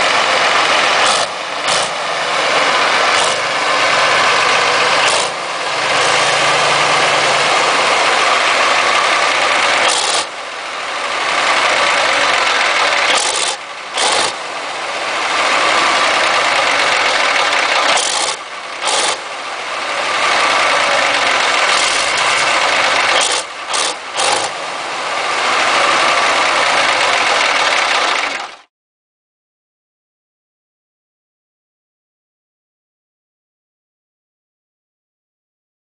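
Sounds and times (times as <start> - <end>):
loud diesel engine running: 0.0 - 28.7.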